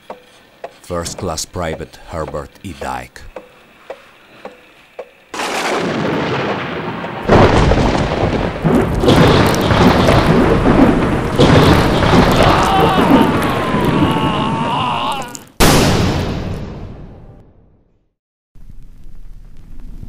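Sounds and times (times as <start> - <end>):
thunder-like rumble: 5.4 - 14.6.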